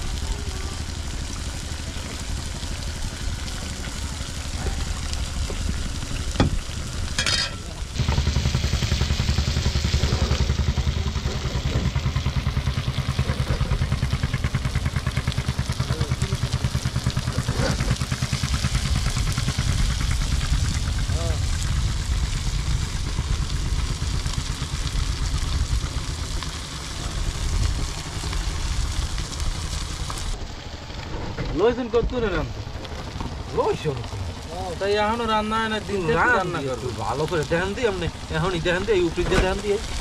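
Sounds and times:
food sizzling in oil: 0.0s - 30.4s
engine running low pulse: 0.0s - 40.0s.

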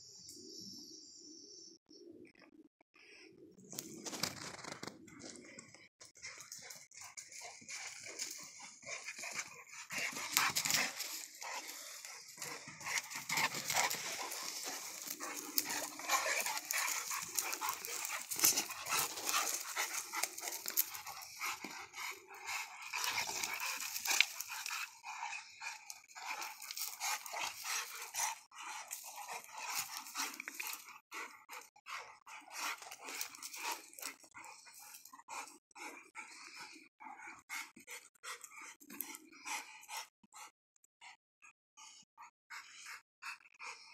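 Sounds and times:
dog vocal sounds: 4.0s - 43.9s
dogs scuffling in dirt: 6.2s - 25.0s.

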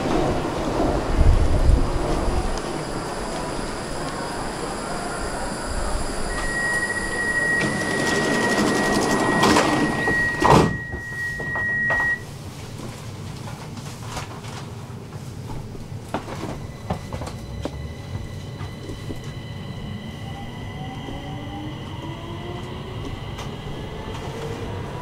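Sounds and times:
train hum: 0.0s - 25.0s
steady high tone: 2.4s - 12.2s, 16.4s - 25.0s
sliding doors shutting with knock: 8.1s - 12.2s.

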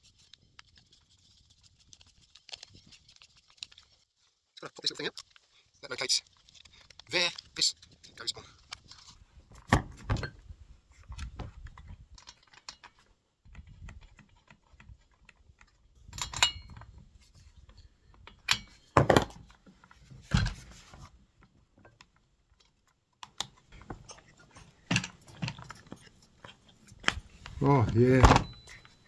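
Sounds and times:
plastic parts clicking and knocking: 11.0s - 29.0s.

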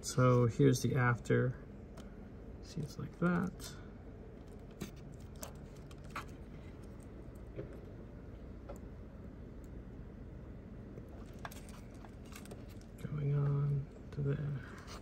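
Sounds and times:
low steady background noise: 0.0s - 15.0s.

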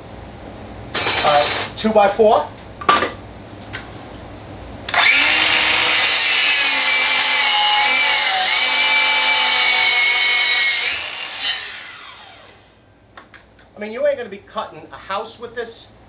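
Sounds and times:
miter saw cutting wood: 4.9s - 12.7s
saw blade winding down: 4.9s - 12.7s.

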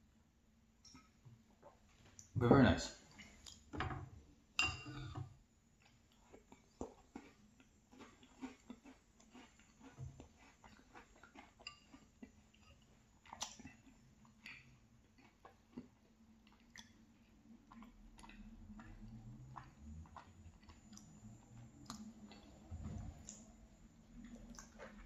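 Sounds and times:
wet chewing clicks: 5.8s - 23.5s, 24.1s - 25.0s.

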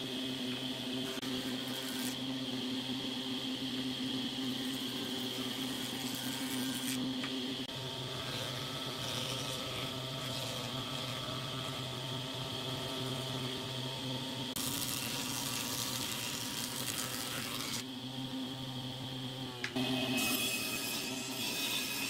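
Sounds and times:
planer humming: 0.0s - 22.0s
hiss of planing wood: 1.0s - 2.3s.

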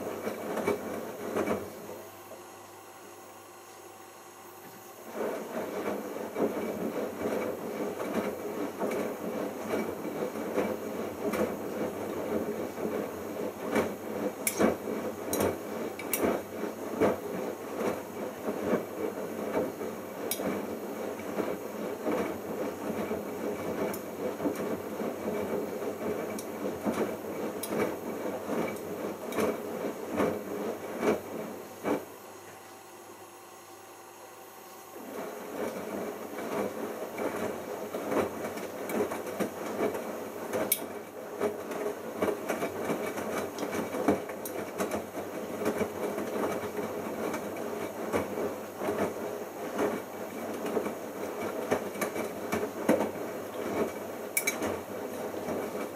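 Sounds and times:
laundry churning: 34.9s - 55.9s.

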